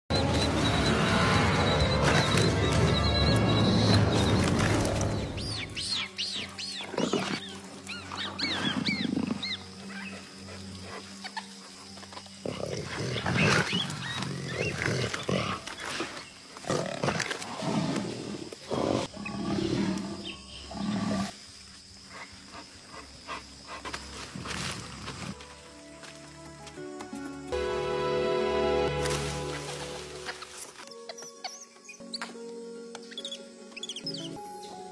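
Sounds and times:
background music: 0.1 - 15.9, 22.0 - 34.9
jaguar growling and snarling: 8.4 - 9.6, 12.4 - 21.4.

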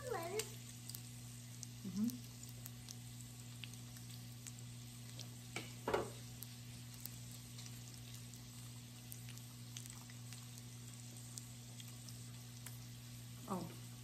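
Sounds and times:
meat sizzling on a grill: 0.0 - 9.7.

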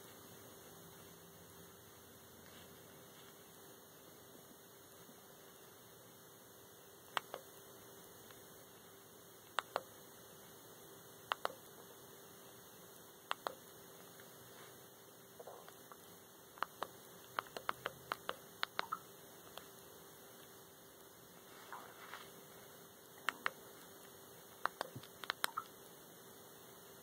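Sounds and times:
faint electrical hum: 0.0 - 27.0
remote control buttons clicking: 7.1 - 7.4, 9.5 - 9.9, 11.3 - 11.6, 13.3 - 13.6, 16.6 - 19.7, 23.2 - 23.6, 24.6 - 25.7.

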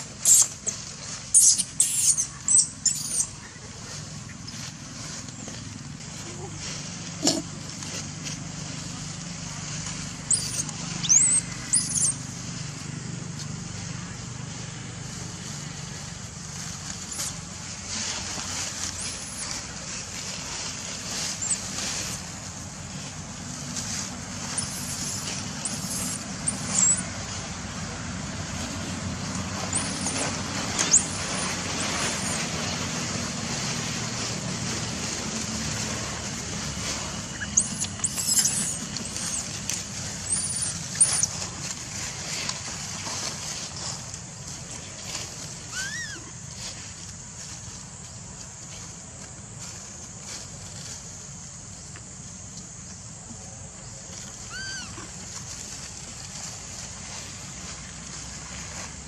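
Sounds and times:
macaque squeals: 0.2 - 3.6, 10.2 - 12.2, 19.0 - 19.6, 21.4 - 21.7, 24.5 - 27.1, 29.7 - 32.5, 37.3 - 39.6, 40.2 - 41.4, 45.7 - 46.3, 54.4 - 55.1.

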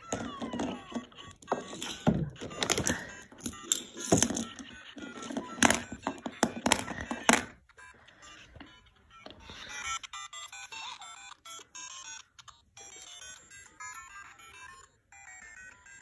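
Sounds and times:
toy knocks and clatter: 0.0 - 7.6
electronic music from small speaker: 0.0 - 16.0.

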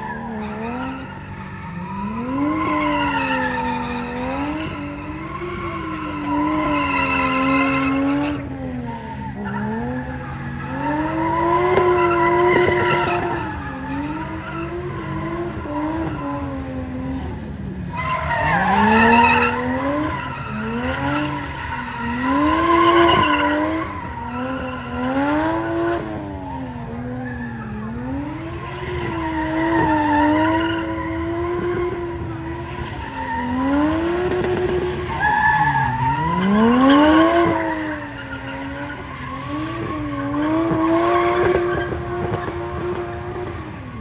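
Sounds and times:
car engine revving: 0.0 - 44.0.

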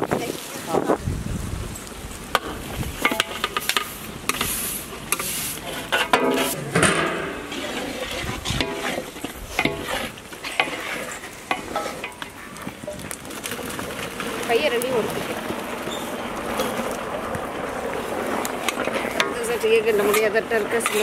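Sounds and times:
metal ladle scraping pots: 2.4 - 13.1, 18.0 - 21.0.

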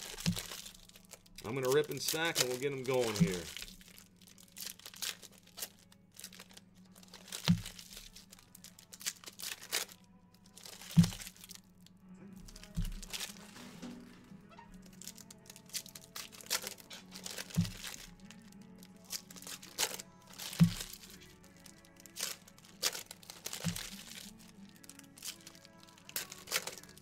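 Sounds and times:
card pack wrappers tearing and crinkling: 0.0 - 11.7, 12.4 - 14.2, 14.8 - 27.0
background music: 0.0 - 27.0.

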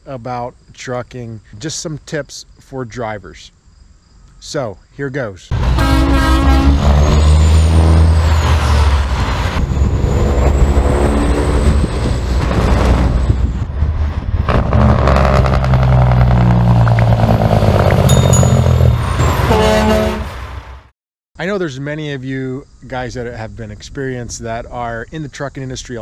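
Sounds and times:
truck diesel engines accelerating: 5.5 - 20.8.

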